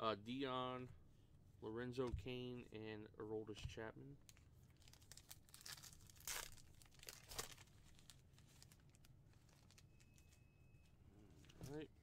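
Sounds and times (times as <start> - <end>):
wrapper tearing and crinkling: 4.8 - 9.8.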